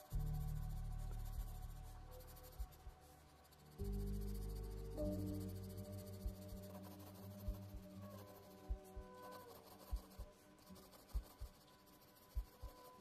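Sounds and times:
pencil scratching on paper: 0.0s - 13.0s
soft background music: 0.0s - 13.0s.

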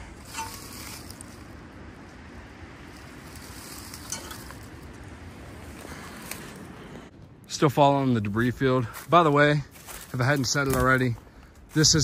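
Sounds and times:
dry leaves crackling and rustling: 0.0s - 6.8s, 8.3s - 12.0s.

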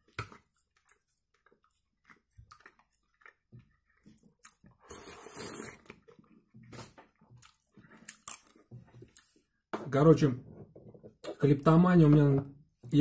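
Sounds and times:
soft chewing: 0.0s - 9.6s
soup slurped off spoon: 4.8s - 6.0s.

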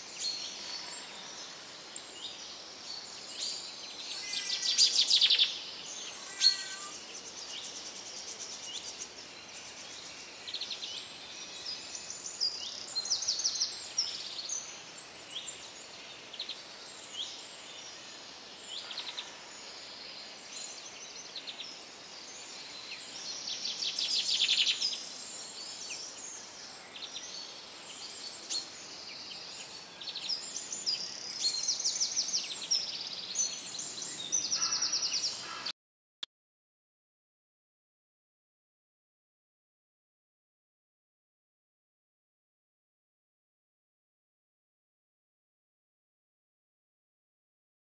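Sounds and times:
faint steady hiss: 0.0s - 35.7s
songbirds chirping and singing: 0.0s - 35.7s.

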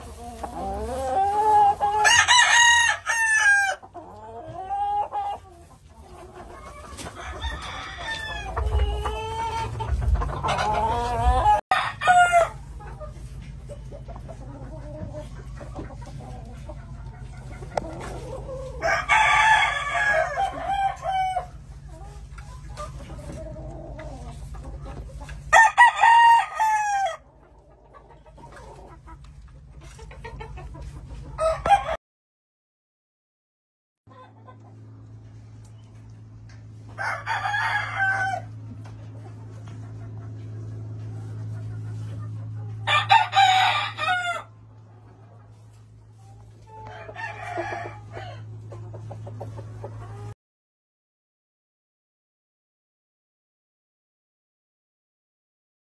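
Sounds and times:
roosters crowing: 0.0s - 5.4s, 6.7s - 12.8s, 17.8s - 21.8s, 25.4s - 27.3s, 31.3s - 32.0s, 36.8s - 38.9s, 42.7s - 44.9s, 46.6s - 48.8s.

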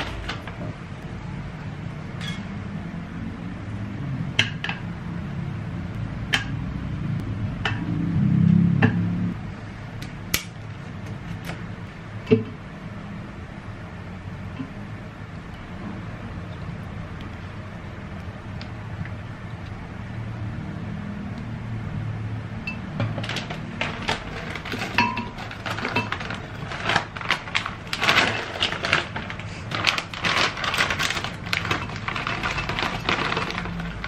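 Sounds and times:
frozen berries clattering into jar: 23.1s - 34.0s.

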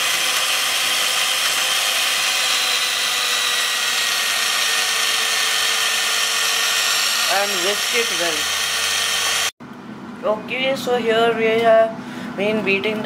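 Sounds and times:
electric hand mixer whirring: 0.0s - 9.6s.

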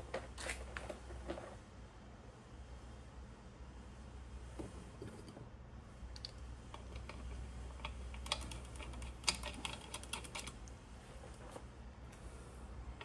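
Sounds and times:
metal parts clicking and tapping: 6.2s - 10.6s.

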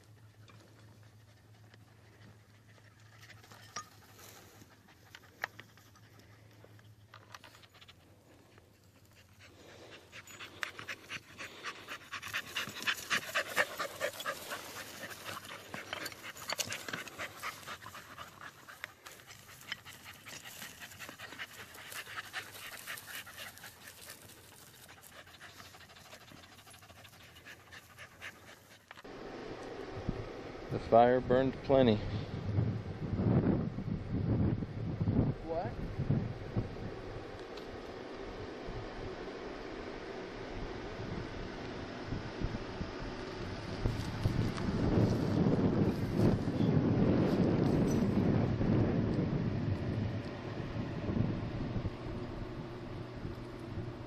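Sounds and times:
puppy panting: 0.3s - 29.1s.

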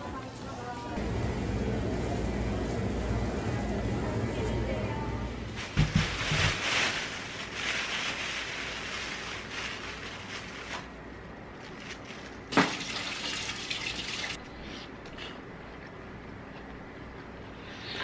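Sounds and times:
plastic bags rustling: 4.3s - 13.3s.

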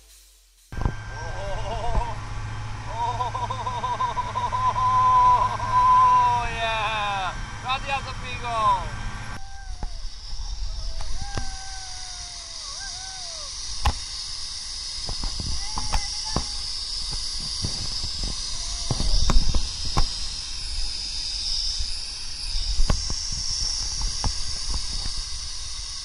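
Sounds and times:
zipline trolley hissing on cable: 0.0s - 26.0s
wind buffeting microphone: 15.0s - 21.1s.

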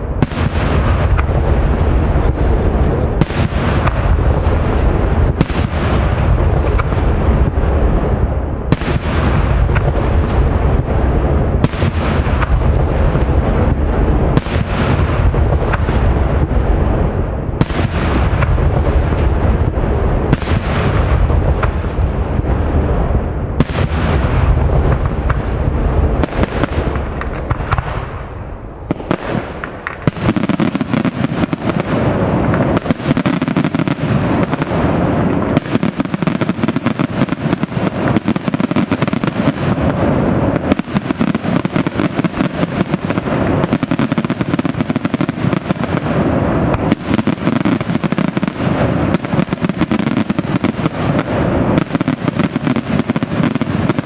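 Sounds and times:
fireworks booming: 0.0s - 54.0s
rapid fireworks crackling: 0.0s - 54.0s.

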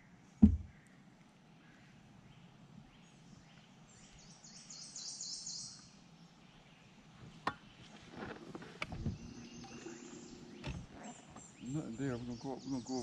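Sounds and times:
bird trilling: 9.1s - 13.0s.

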